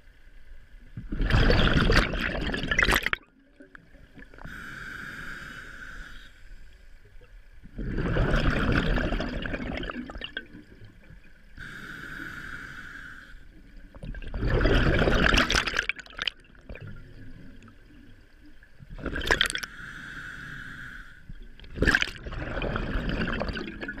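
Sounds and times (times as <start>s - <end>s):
rush of exhaled bubbles: 1.0s - 3.3s, 7.7s - 10.9s, 13.9s - 17.7s, 18.9s - 19.7s, 21.6s - 24.0s
regulator inhale hissing whine: 4.3s - 7.0s, 11.6s - 13.8s, 19.6s - 21.4s.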